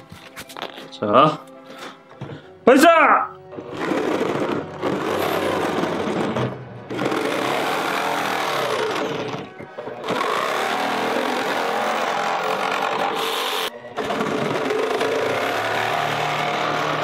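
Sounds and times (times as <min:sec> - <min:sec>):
jigsaw cutting plastic: 0:03.5 - 0:17.0.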